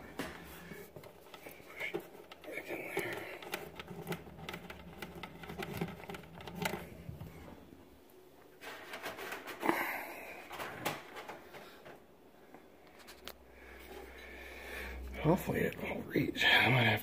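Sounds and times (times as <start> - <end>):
cable clicking and tapping on wood: 0.9 - 7.5.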